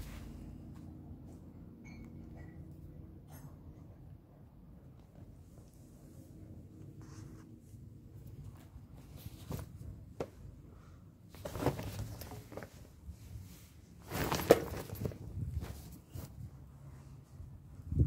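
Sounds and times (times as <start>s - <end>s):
cat scuffling on fabric: 11.3s - 16.5s.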